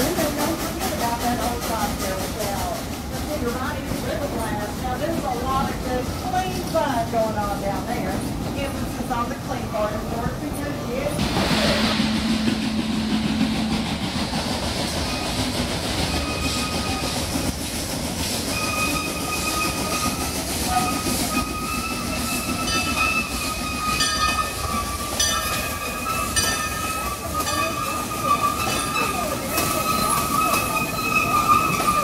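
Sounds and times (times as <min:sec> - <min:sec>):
steam train rolling: 0:00.0 - 0:32.0
wheels clicking over rail joints: 0:14.4 - 0:32.0
wheels squealing: 0:14.9 - 0:32.0.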